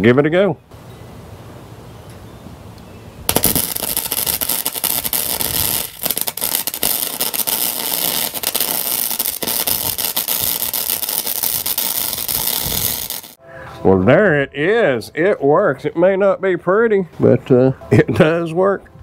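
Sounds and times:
welding arc crackling: 3.3 - 13.4.

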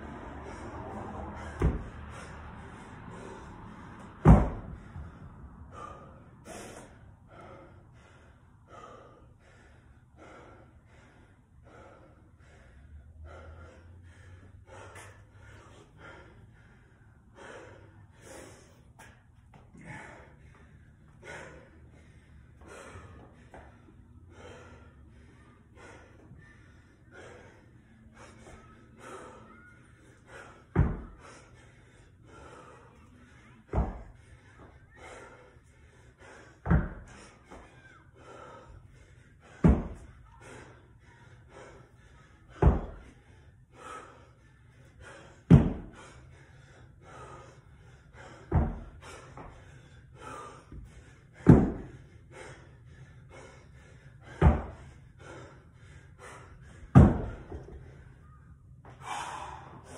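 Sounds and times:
heavy panting breaths: 0.0 - 59.9
dumbbell thudding on rubber mat: 4.2 - 4.8, 30.7 - 31.1, 36.6 - 37.1, 39.6 - 40.1, 42.6 - 43.0, 45.5 - 46.0, 48.5 - 48.9, 51.4 - 52.0, 54.4 - 54.8, 56.9 - 57.8.

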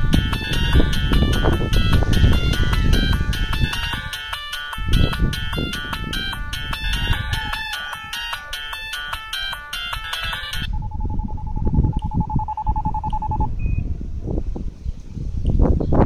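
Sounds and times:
wind rumble on microphone: 0.0 - 4.2, 4.8 - 7.8, 10.6 - 16.0
phone ringtone melody: 0.0 - 13.7
phone beep: 0.1 - 13.8.

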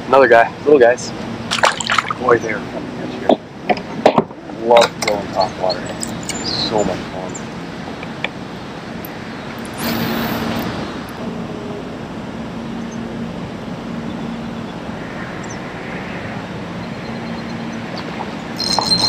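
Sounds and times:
low background hum: 0.0 - 19.0
fish striking with a splash: 1.5 - 2.2.

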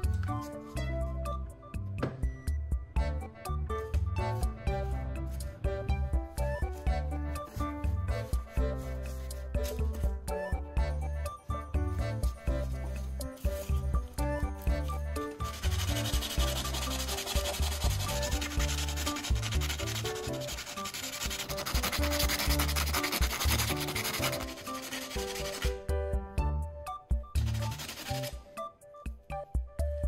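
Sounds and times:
rod scraping on sandpaper: 15.3 - 25.8, 27.5 - 28.4.

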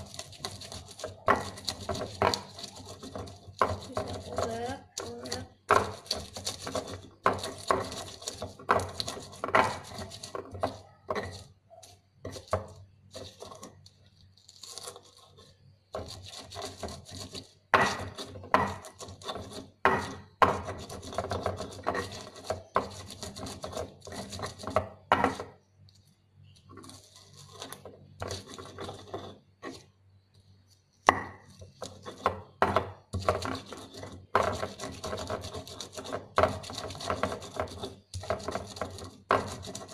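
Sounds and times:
stone pestle grinding and pounding: 0.0 - 25.7, 26.6 - 30.0, 31.0 - 39.9.

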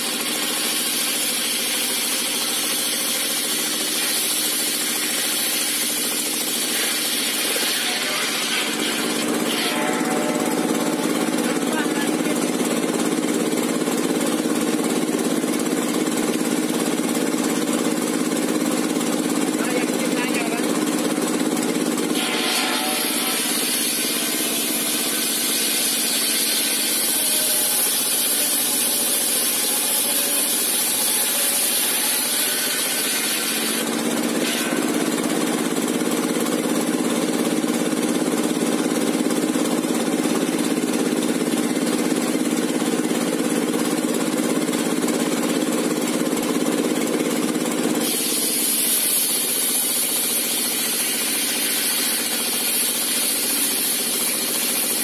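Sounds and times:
circular saw whining: 0.1 - 44.1, 44.7 - 55.0
diesel engine running: 9.3 - 25.9, 33.9 - 48.1.

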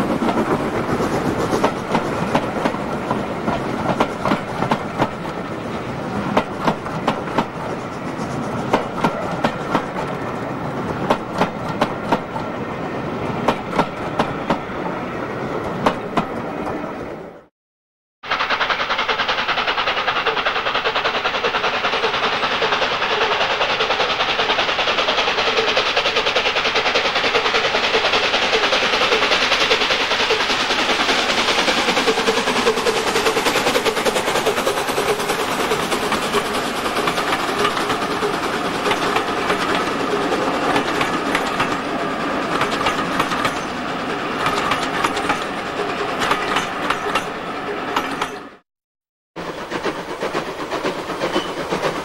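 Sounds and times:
steam locomotive exhaust: 18.2 - 48.6, 49.4 - 52.0.

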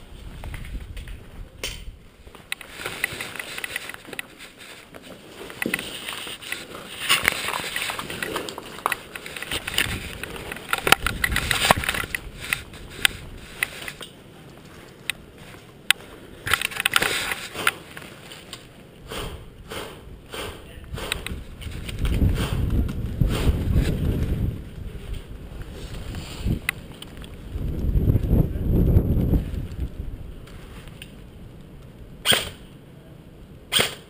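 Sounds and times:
clothing and kit rustling: 2.2 - 18.8.

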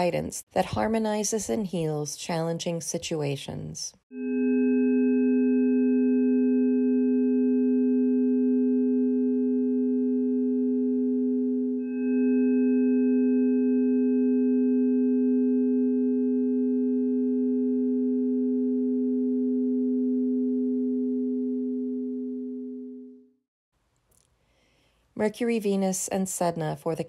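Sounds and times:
steady electronic sine tones: 4.2 - 23.4.

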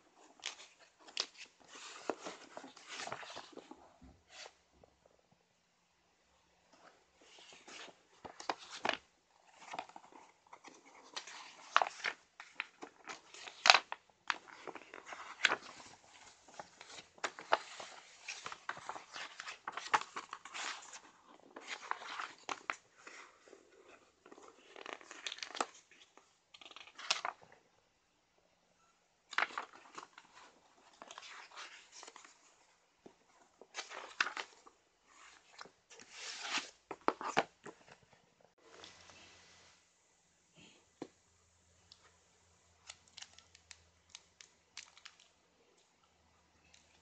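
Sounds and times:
catalogue pages rustling: 0.0 - 4.6, 6.7 - 27.6, 29.3 - 39.8.

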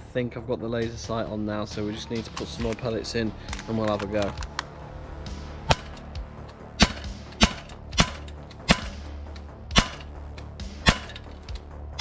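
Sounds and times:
air pistol shots: 5.6 - 6.0, 6.8 - 12.0
pellet striking target box: 5.6 - 6.0, 6.8 - 9.1, 9.7 - 11.3.

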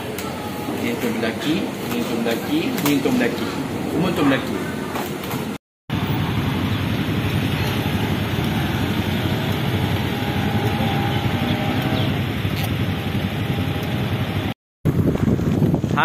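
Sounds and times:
road traffic: 0.0 - 15.6
vehicle engine passing: 5.9 - 14.6
wind rumbling on microphone: 6.0 - 16.0.

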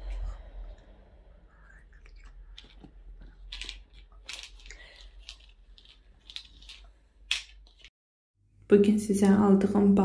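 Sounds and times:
sharp clicks and crinkles: 2.6 - 7.9.

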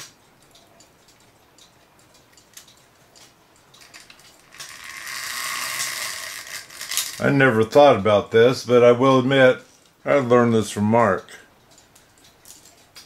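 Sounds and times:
chain links clicking: 0.8 - 7.2, 11.7 - 13.0
metallic chain rattle: 3.7 - 7.3.

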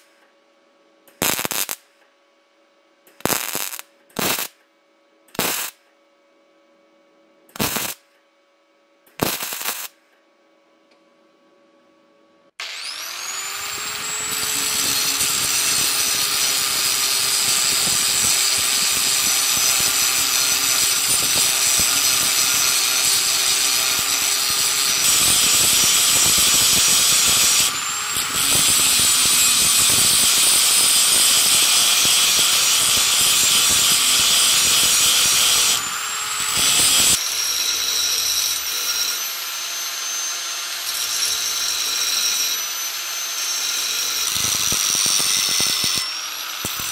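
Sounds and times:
angle grinder grinding metal: 7.6 - 8.0, 9.2 - 9.9, 12.6 - 46.9.

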